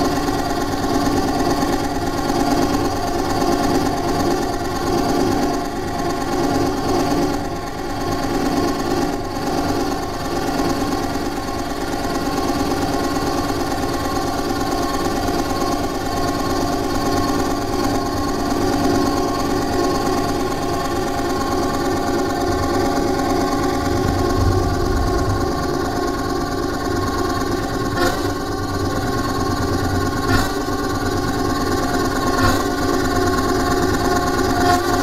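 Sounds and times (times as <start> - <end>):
low rumble: 23.4 - 27.9.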